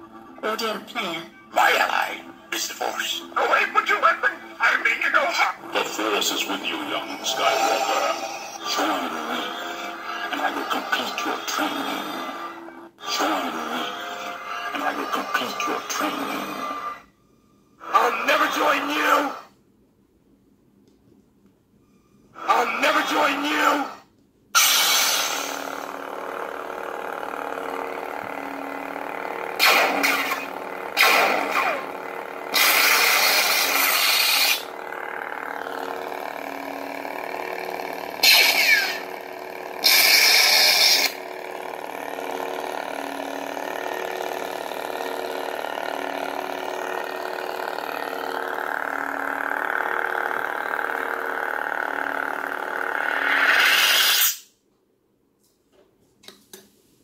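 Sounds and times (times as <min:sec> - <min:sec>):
pulsing lightsaber hum: 0:01.0 - 0:17.0, 0:24.6 - 0:54.4
short loud lightsaber effects: 0:24.6 - 0:25.9, 0:29.6 - 0:31.9, 0:32.5 - 0:34.7, 0:38.2 - 0:39.1, 0:39.8 - 0:41.2, 0:53.1 - 0:54.5
lightsaber ignition: 0:24.6 - 0:26.0, 0:27.2 - 0:37.0, 0:37.9 - 0:41.2, 0:51.5 - 0:54.5
lightsaber switching off: 0:24.6 - 0:26.0, 0:28.4 - 0:34.8, 0:38.1 - 0:41.2, 0:53.0 - 0:54.5.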